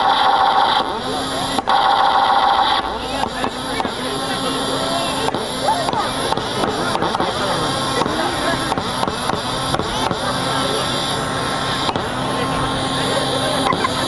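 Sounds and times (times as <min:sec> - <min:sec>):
crowd chattering: 0:00.0 - 0:14.0.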